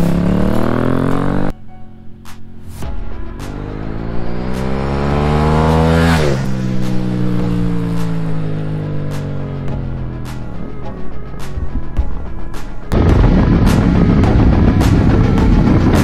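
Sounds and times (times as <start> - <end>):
motorcycle accelerating past: 0.0 - 1.5, 3.5 - 9.6
music with steady beat: 2.2 - 16.0.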